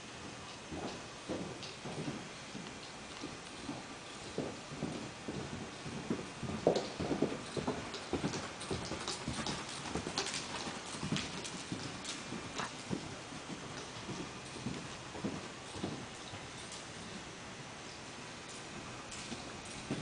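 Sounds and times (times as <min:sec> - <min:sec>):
hoofbeats on soft dirt: 0:00.0 - 0:20.0.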